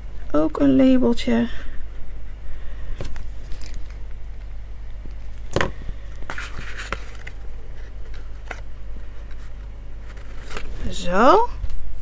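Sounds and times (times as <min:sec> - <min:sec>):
steady low hum: 0:00.0 - 0:12.0
paper rustling: 0:06.1 - 0:11.0.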